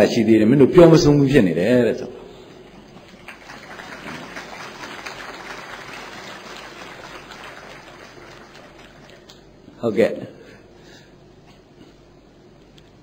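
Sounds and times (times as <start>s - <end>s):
faint audience applause: 2.8s - 9.6s.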